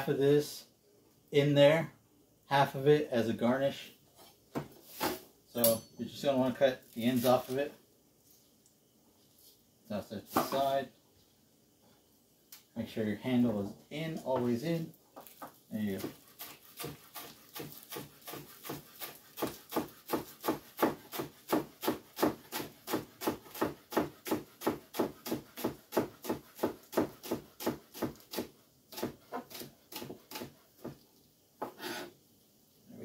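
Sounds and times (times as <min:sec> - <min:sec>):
knife chopping on wooden board: 0:16.0 - 0:31.0.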